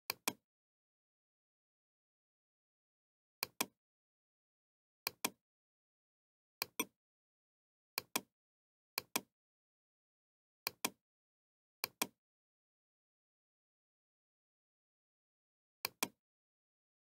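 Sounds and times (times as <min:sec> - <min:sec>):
computer mouse clicks: 0:00.1 - 0:00.4, 0:03.4 - 0:03.8, 0:05.1 - 0:05.4, 0:06.6 - 0:06.9, 0:09.0 - 0:09.3, 0:10.7 - 0:11.0, 0:11.8 - 0:12.2, 0:15.8 - 0:16.2.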